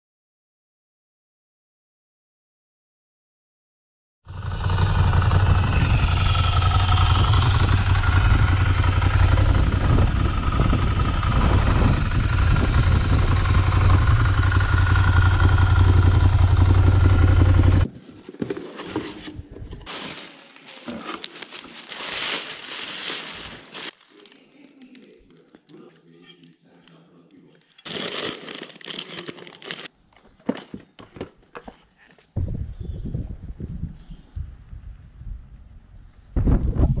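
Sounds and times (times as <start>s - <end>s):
motorcycle engine running: 4.3s - 17.9s
packing paper crinkling: 19.0s - 26.2s, 27.5s - 29.9s.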